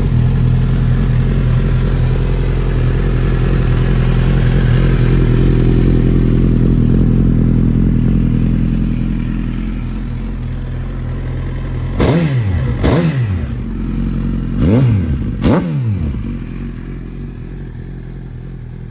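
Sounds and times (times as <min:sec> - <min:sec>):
motorcycle engine idling: 0:00.0 - 0:18.9
engine revving blips: 0:12.0 - 0:16.4.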